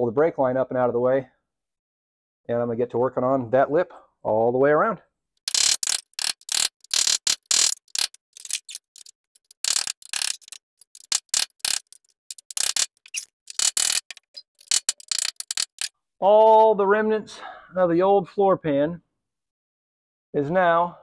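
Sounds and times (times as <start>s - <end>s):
hand tool scraping sheet steel: 5.5s - 15.9s.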